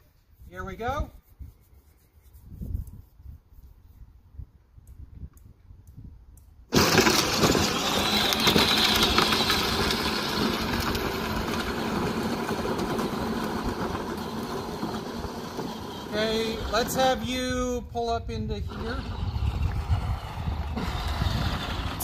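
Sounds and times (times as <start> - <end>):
lawn tractor engine running: 6.7 - 17.2.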